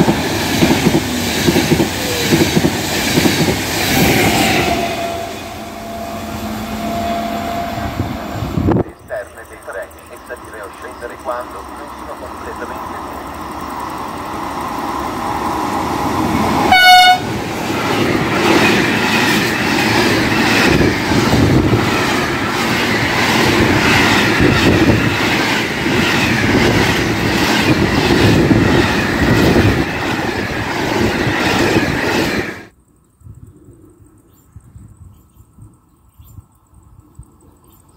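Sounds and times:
wheels clickety-clack over rail joints: 0.0s - 4.4s, 17.4s - 32.7s
train running noise: 0.0s - 32.7s
train horn blast: 4.0s - 8.8s, 16.6s - 17.4s.

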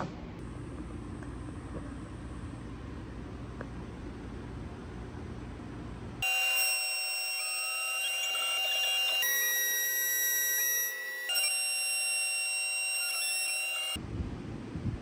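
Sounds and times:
milling machine high whine: 6.2s - 14.0s.

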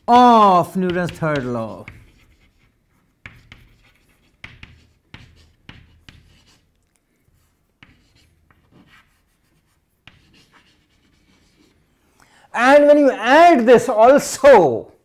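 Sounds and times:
chalk scratching on chalkboard: 0.8s - 11.9s.

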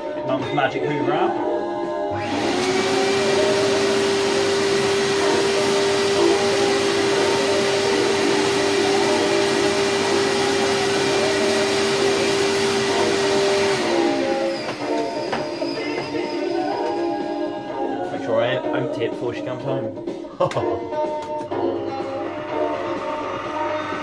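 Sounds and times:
vacuum cleaner running: 2.1s - 17.5s.

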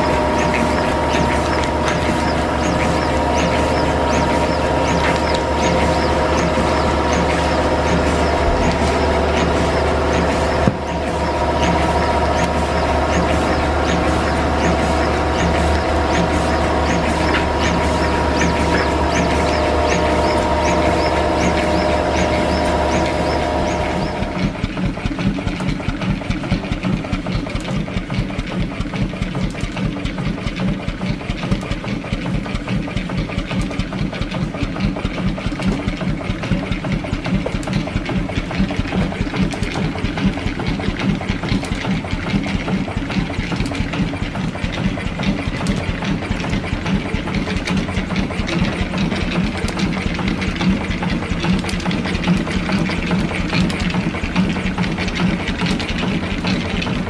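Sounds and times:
steady hum with whine: 0.0s - 24.6s.

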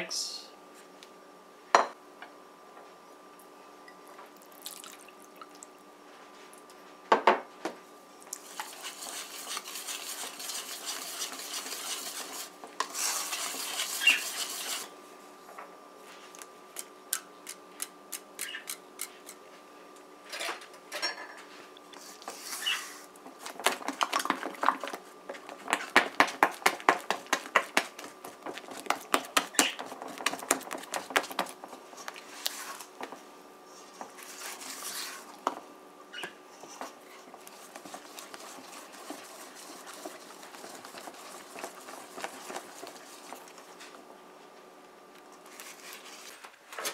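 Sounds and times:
faint steady hum: 0.0s - 46.9s
whisk beating batter in metal bowl: 8.4s - 14.9s, 37.4s - 43.7s.

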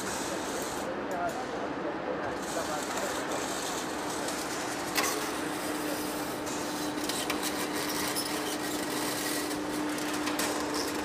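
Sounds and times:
lathe tool scraping metal: 2.4s - 11.0s
machine hum: 2.8s - 11.0s.

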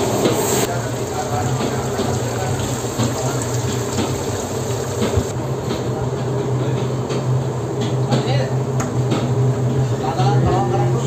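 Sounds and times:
oil bubbling and sizzling: 0.0s - 5.4s
low machinery hum: 0.0s - 11.0s.

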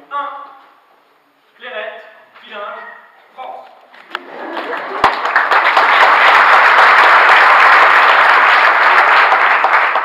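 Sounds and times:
audience applauding: 4.1s - 10.0s.

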